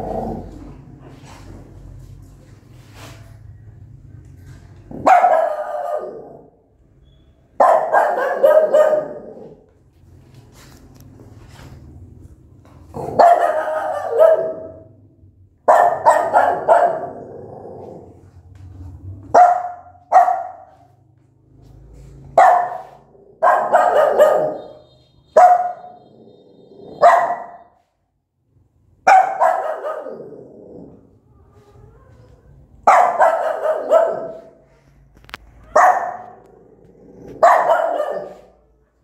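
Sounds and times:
dog barking angrily: 0:04.9 - 0:06.6, 0:07.6 - 0:09.6, 0:12.9 - 0:14.9, 0:15.6 - 0:18.2, 0:19.3 - 0:20.9, 0:22.2 - 0:24.8, 0:25.4 - 0:27.7, 0:29.0 - 0:30.9, 0:32.8 - 0:34.7, 0:35.7 - 0:38.7.

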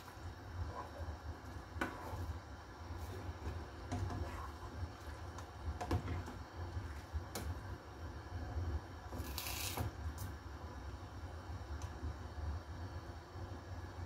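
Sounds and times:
steady low hum: 0:00.0 - 0:09.3.

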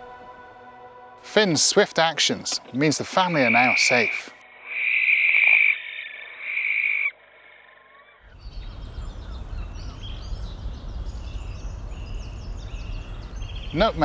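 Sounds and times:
barn owl screeching: 0:03.3 - 0:08.2
low steady rumble: 0:08.3 - 0:13.8.

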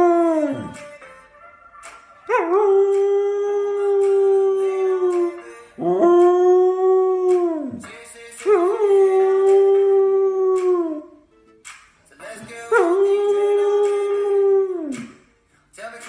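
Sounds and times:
dog howling: 0:02.3 - 0:07.8, 0:12.7 - 0:15.1.

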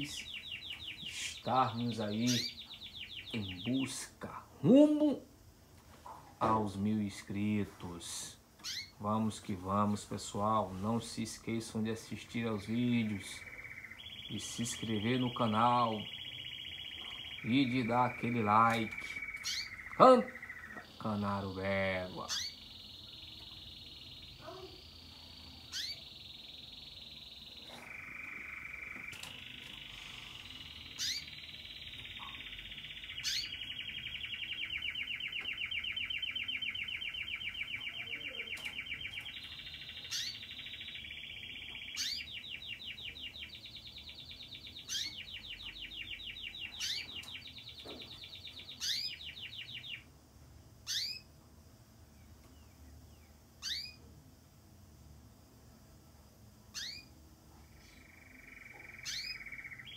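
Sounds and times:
canary singing trills: 0:00.0 - 0:54.4, 0:56.7 - 0:59.9
sharp high chirps: 0:12.8 - 0:50.1, 0:53.6 - 0:54.0, 0:57.8 - 0:59.9.

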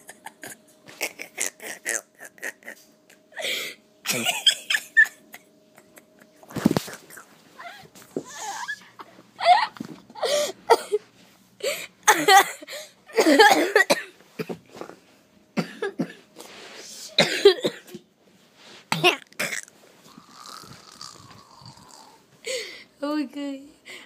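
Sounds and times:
people making loud vocal sounds: 0:20.1 - 0:22.2.

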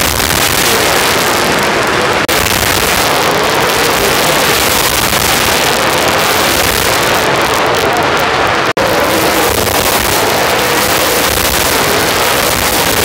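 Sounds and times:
race car engines roaring: 0:00.0 - 0:13.0.

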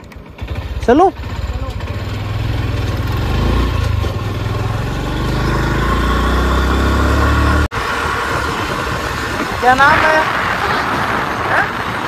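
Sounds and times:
motorcycle engine running: 0:00.0 - 0:12.0
wind rushing on microphone: 0:07.7 - 0:12.0.

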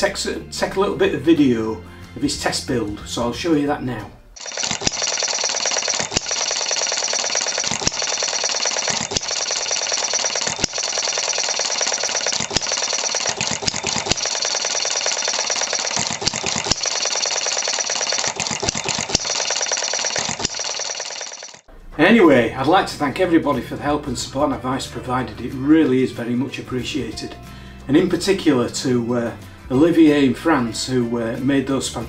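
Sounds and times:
engine flywheels clattering: 0:04.4 - 0:21.7.

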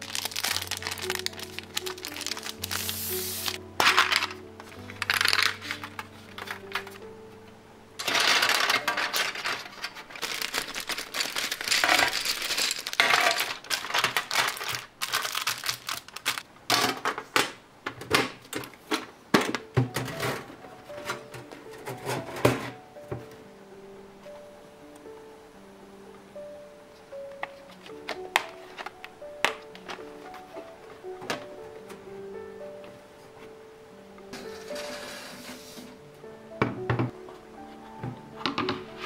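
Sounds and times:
wooden pencils clattering: 0:00.0 - 0:07.0, 0:08.0 - 0:23.3, 0:27.4 - 0:32.0.

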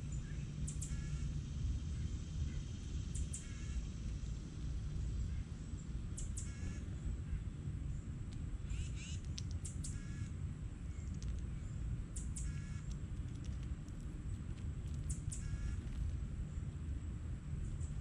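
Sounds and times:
small birds chirping: 0:00.0 - 0:03.8, 0:05.1 - 0:16.8
steady low rumble: 0:00.0 - 0:18.0
crow cawing: 0:10.0 - 0:10.3, 0:12.4 - 0:12.8, 0:15.4 - 0:15.8.

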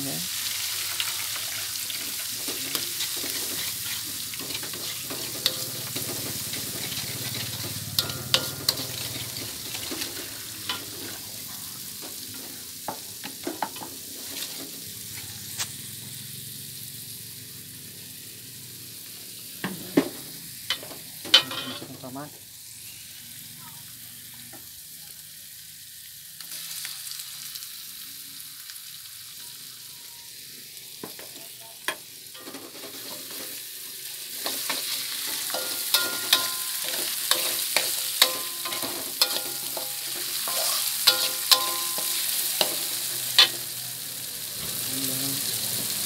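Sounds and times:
sizzling and hissing: 0:00.0 - 0:46.0
utensils knocking on pots: 0:04.2 - 0:11.0, 0:20.7 - 0:21.9, 0:34.6 - 0:43.6.

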